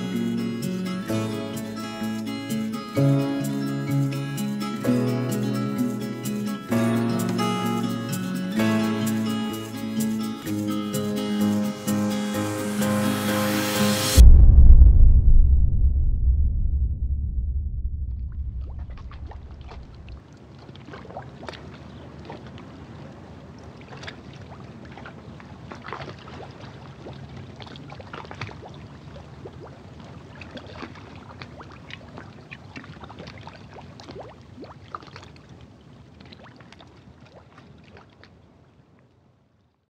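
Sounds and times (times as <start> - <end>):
low rumble: 12.6 - 20.2
seawater splashing: 18.6 - 38.5.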